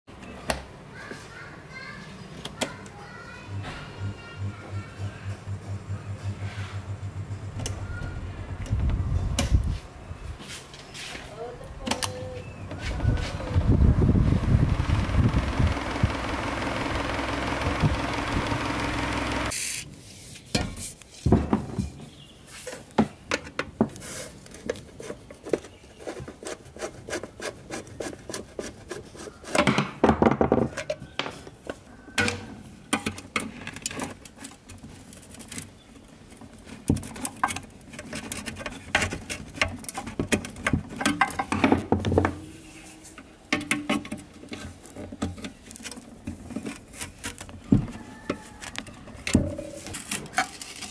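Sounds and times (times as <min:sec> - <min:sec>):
electric fan humming: 0:02.4 - 0:10.2, 0:11.6 - 0:19.7.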